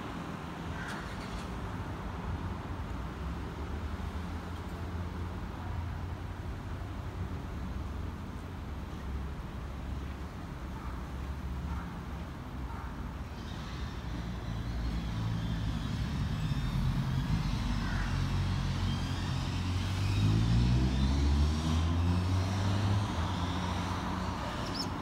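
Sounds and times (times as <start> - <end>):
road traffic: 0.0 - 25.0
heavy vehicle engine accelerating: 14.2 - 25.0.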